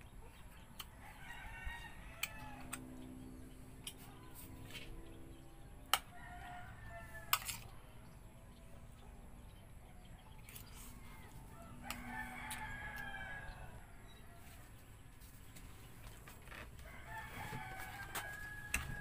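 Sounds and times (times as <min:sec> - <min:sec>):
rooster crowing: 0:01.0 - 0:02.8, 0:06.1 - 0:07.6, 0:11.2 - 0:14.5, 0:16.8 - 0:19.0.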